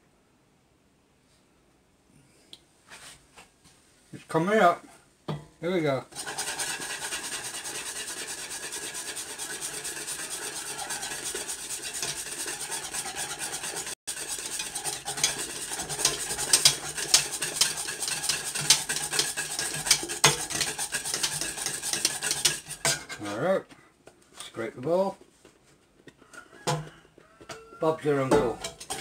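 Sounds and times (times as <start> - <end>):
hot milk sizzling: 6.1 - 23.1, 28.4 - 29.0
plastic scraper scraping metal bowl: 6.1 - 23.4, 27.8 - 29.0.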